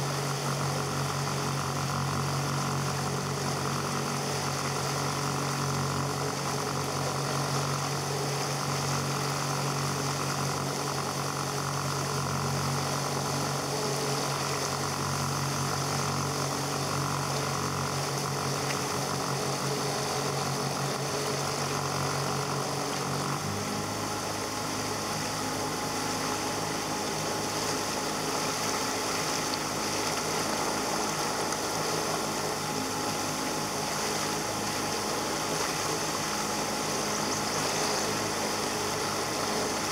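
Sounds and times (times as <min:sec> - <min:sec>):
outboard motor running: 0:00.0 - 0:39.9
rushing water: 0:15.7 - 0:39.9.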